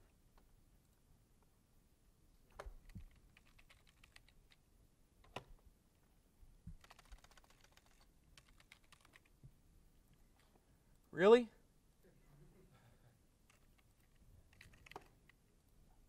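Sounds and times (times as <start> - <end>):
laptop keyboard typing: 2.5 - 4.6, 6.7 - 9.4, 13.4 - 15.4.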